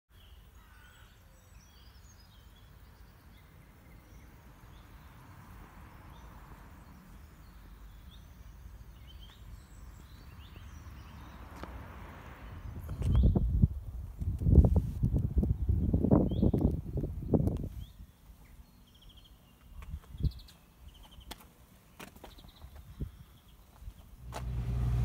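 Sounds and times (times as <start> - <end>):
small birds chirping: 0.1 - 11.7, 12.4 - 14.6, 15.4 - 25.0
low steady rumble: 24.2 - 25.0.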